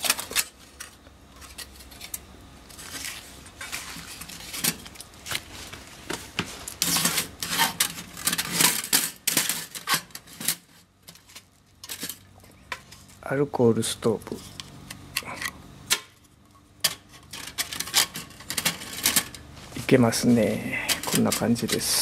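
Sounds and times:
metal grill parts clinking: 6.8s - 13.0s, 16.8s - 19.4s, 20.7s - 22.0s.

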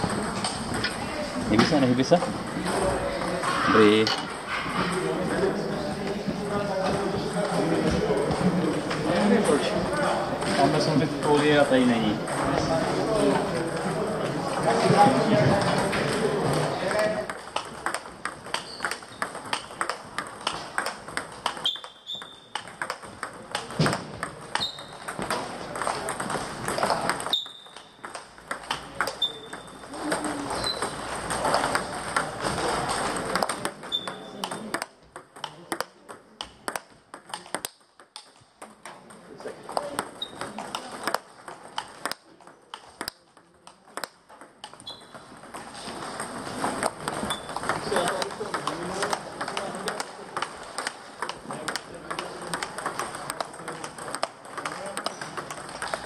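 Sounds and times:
table tennis balls clicking: 0.0s - 56.0s
short high squeaks: 21.6s - 22.6s, 24.6s - 25.0s, 27.2s - 28.0s, 29.1s - 29.8s, 30.5s - 31.0s, 44.8s - 45.2s.

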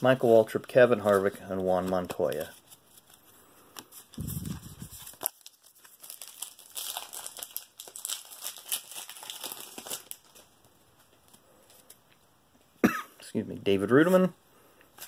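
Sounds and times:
foil wrapper crinkling and tearing: 4.0s - 10.6s.

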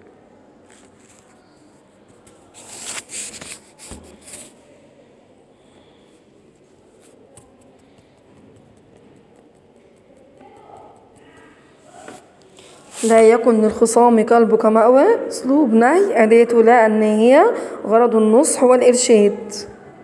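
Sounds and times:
rustling handling noise: 0.6s - 4.6s, 11.1s - 13.3s.

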